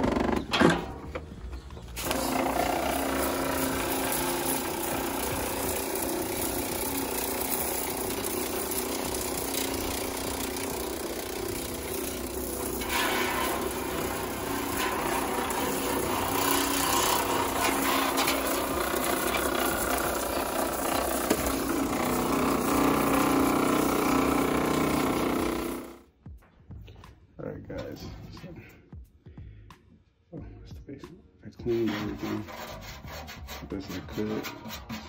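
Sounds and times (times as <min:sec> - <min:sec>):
pressure washer humming: 0:02.0 - 0:26.1.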